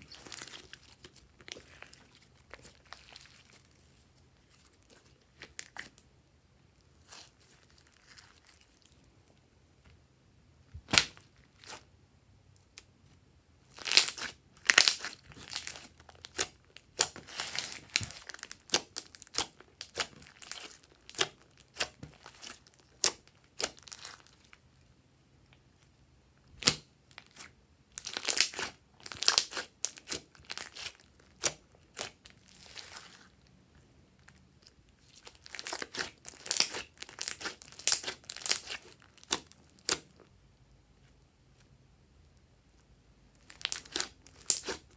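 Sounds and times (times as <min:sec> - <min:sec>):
sticky slime crackling and popping: 0:00.0 - 0:06.0, 0:10.8 - 0:11.8, 0:13.7 - 0:24.6, 0:26.6 - 0:33.3, 0:34.2 - 0:40.2, 0:43.4 - 0:44.9.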